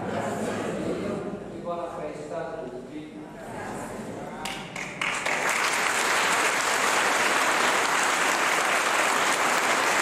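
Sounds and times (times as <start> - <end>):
crowd applauding: 4.8 - 10.0.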